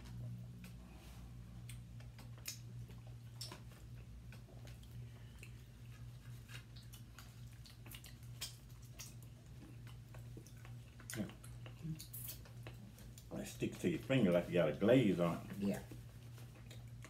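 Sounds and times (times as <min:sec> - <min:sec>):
mouth smacks and clicks: 0:01.6 - 0:04.9.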